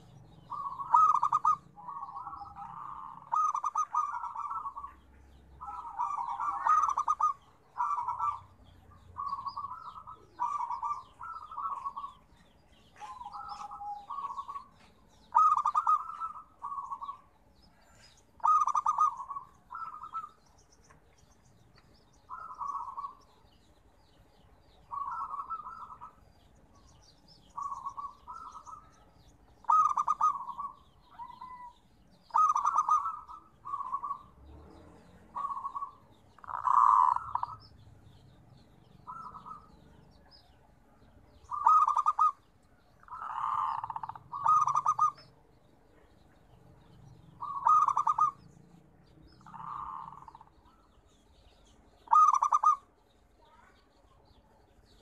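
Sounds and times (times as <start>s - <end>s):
dove cooing: 0.0s - 20.4s, 22.3s - 23.3s, 24.9s - 26.2s, 27.5s - 38.2s, 39.0s - 40.6s, 41.3s - 45.3s, 46.8s - 48.5s, 49.4s - 50.9s, 52.0s - 53.6s
faint high bird chirps: 0.0s - 55.0s.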